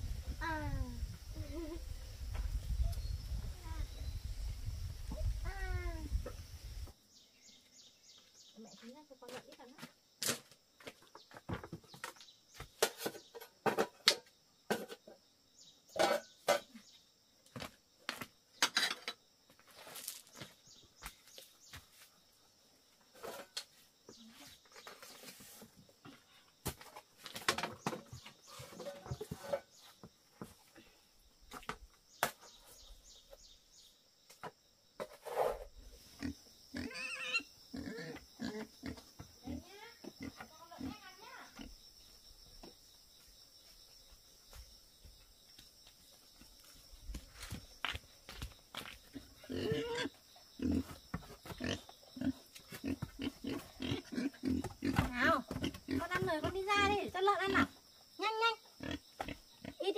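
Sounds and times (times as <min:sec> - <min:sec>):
pigs grunting: 0:36.2 - 0:40.9, 0:49.3 - 0:56.2.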